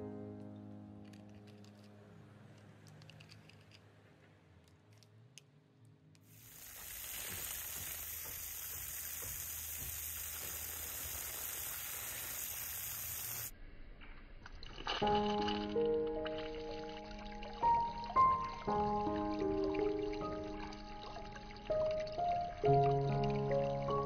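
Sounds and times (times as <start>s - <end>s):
fountain water splashing: 6.3s - 13.5s, 14.8s - 24.0s
water trickling: 6.3s - 13.5s, 14.6s - 24.0s.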